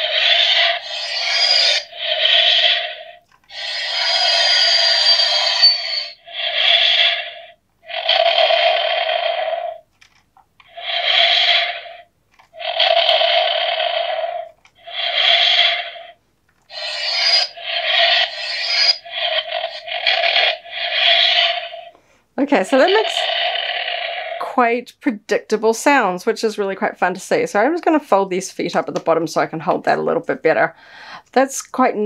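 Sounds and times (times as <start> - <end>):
toy spaceship sound effects: 0.0 - 9.8, 10.6 - 12.0, 12.6 - 16.1, 16.7 - 21.9.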